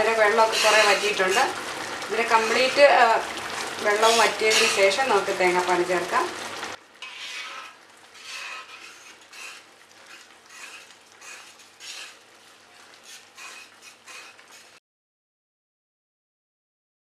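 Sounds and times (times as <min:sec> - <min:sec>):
syrup bubbling: 0:00.0 - 0:14.8
ladle scraping in metal pot: 0:00.1 - 0:03.0, 0:03.9 - 0:05.1, 0:07.0 - 0:14.8.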